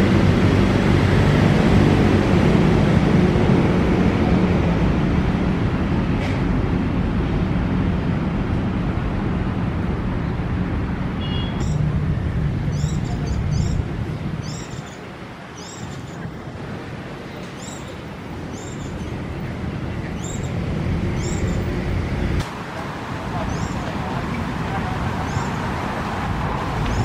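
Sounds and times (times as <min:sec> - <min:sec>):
low rumble of road traffic: 0:00.0 - 0:27.0
bird chirping: 0:11.2 - 0:11.9, 0:12.6 - 0:16.3, 0:17.4 - 0:19.3, 0:20.2 - 0:21.8.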